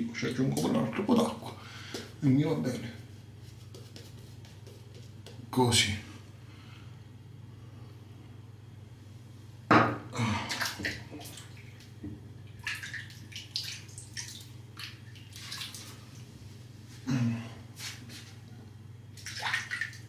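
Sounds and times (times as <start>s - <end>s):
water splashing at sink: 10.3s - 16.2s, 19.1s - 20.0s
water drips: 10.5s - 16.0s.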